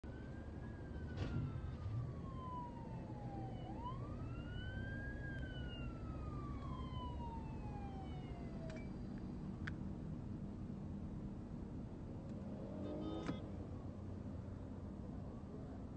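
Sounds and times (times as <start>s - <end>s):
police siren wailing: 0.0s - 8.8s
low car rumble: 0.0s - 15.9s.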